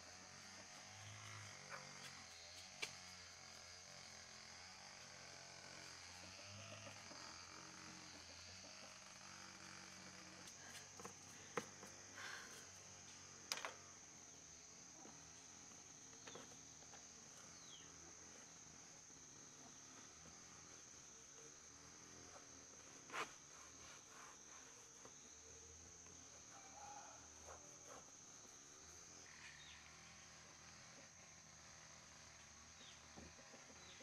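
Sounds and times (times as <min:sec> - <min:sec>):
insects chirring: 0:00.0 - 0:34.0
brush on plastic: 0:23.1 - 0:25.0.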